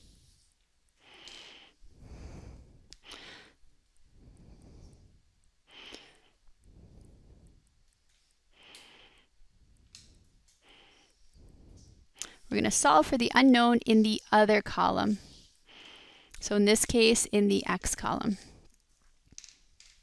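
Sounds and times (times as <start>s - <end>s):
faint slow breathing: 0.0s - 12.5s, 15.1s - 16.4s, 18.4s - 18.8s.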